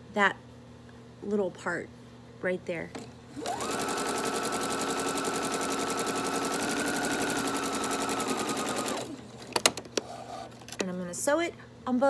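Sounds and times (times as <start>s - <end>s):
sewing machine motor whine: 3.4s - 9.2s.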